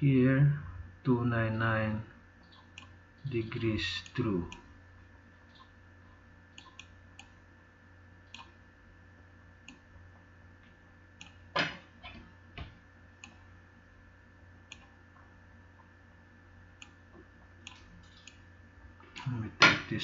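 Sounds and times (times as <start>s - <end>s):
low steady hum: 0.0s - 20.0s
computer mouse clicks: 2.4s - 3.0s, 6.5s - 7.4s, 8.3s - 8.6s, 13.2s - 13.4s, 14.7s - 15.0s, 17.6s - 18.4s.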